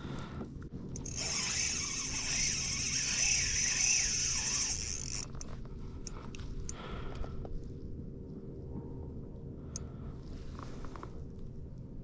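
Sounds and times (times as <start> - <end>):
fishing reel buzzing: 1.0 - 5.4.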